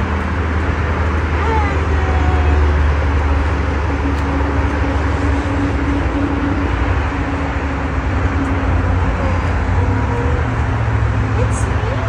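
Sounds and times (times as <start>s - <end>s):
low mechanical drone: 0.0s - 12.0s.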